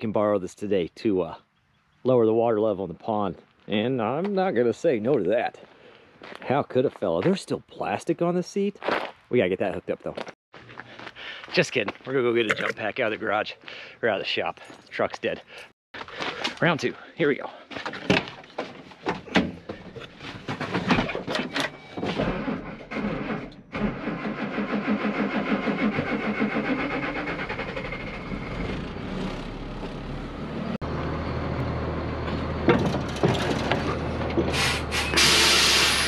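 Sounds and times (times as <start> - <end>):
diesel engine cranking and idling: 22.3 - 36.0
loud hiss: 34.6 - 36.0.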